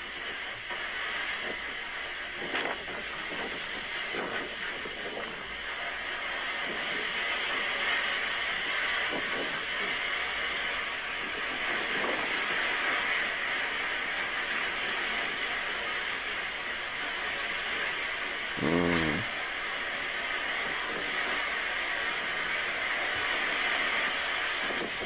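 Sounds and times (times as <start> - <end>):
steady hiss: 0.0 - 25.0.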